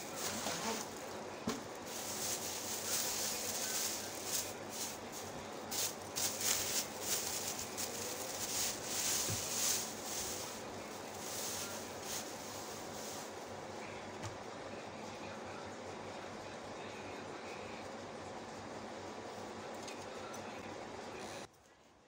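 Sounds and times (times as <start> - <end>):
plastic wrapping crinkling: 0.0 - 13.4.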